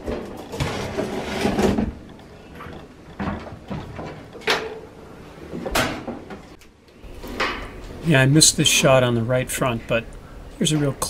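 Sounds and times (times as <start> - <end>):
sheet metal scraping and rattling: 0.0 - 4.9
washing machine cabinet clunks: 5.6 - 6.4.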